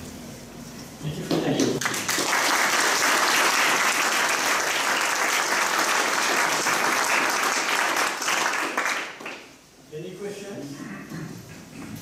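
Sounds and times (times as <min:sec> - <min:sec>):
audience applauding: 0:01.5 - 0:09.6.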